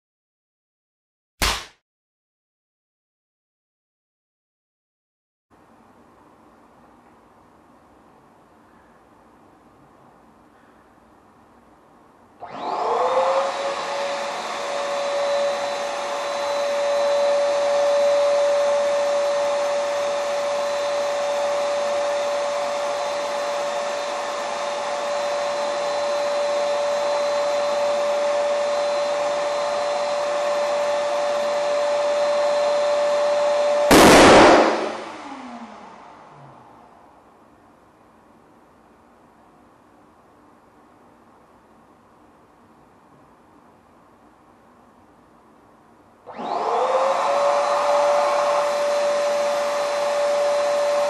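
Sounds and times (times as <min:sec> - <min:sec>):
balloon bursting: 0:01.4 - 0:01.8, 0:33.9 - 0:35.4.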